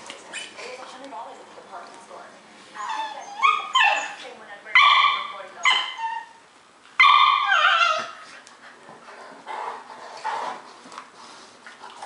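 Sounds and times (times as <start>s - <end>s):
dog yelping: 2.8s - 4.2s, 4.8s - 6.4s, 7.0s - 8.2s.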